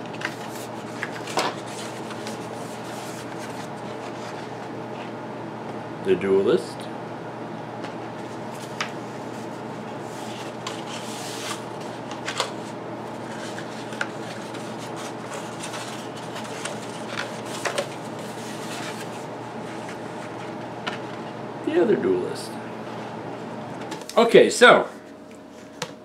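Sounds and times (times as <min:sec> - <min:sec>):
electric fan humming: 0:00.0 - 0:26.0
stiff paper rustling: 0:00.1 - 0:05.1, 0:08.2 - 0:20.6
paper crackles: 0:10.1 - 0:20.0.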